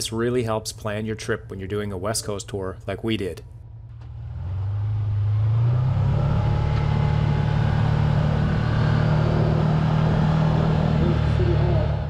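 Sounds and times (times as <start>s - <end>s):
engine accelerating: 3.7s - 12.0s.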